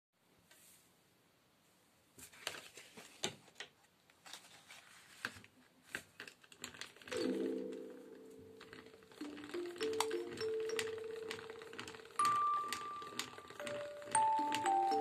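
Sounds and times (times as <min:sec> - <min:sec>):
paper rustling: 0:02.2 - 0:13.6
music box notes: 0:07.1 - 0:15.0.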